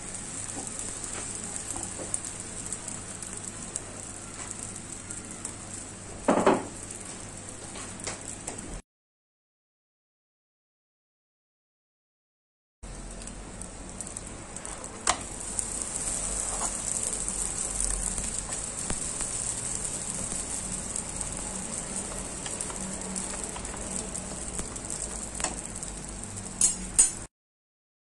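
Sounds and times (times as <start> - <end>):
dough sizzling in a pan: 0.0 - 8.8, 12.8 - 27.3
metal tongs clicking on pan: 26.5 - 27.3.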